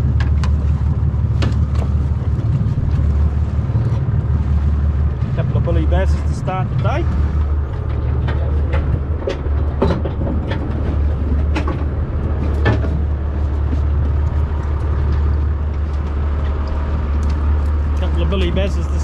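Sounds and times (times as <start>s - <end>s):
boat engine humming: 0.0s - 19.0s
sharp knocks on boat: 7.2s - 14.2s.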